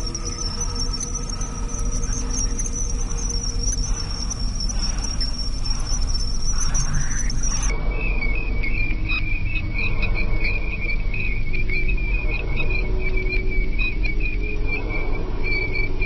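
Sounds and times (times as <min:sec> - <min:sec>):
high-pitched insect-like chirring trill: 0:00.0 - 0:07.7
low droning rumble: 0:00.0 - 0:13.6.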